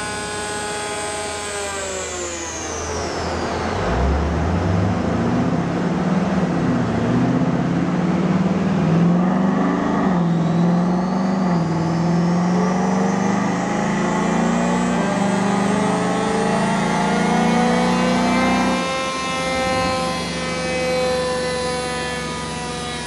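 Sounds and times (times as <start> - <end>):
car engine and exhaust under load: 0.0 - 23.0.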